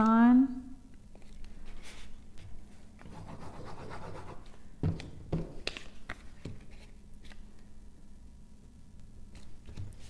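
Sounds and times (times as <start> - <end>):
scratchy rubbing on paper: 3.0 - 4.5.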